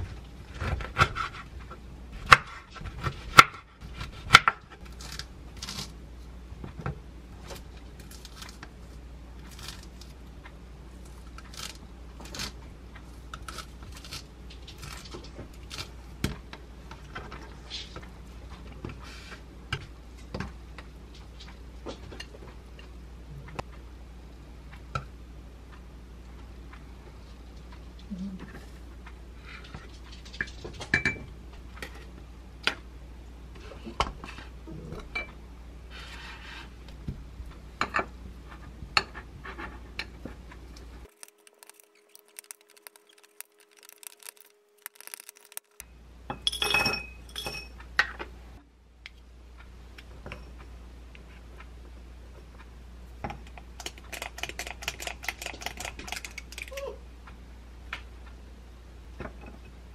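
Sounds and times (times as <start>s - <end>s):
spoon clinking against glass container: 46.4s - 47.8s.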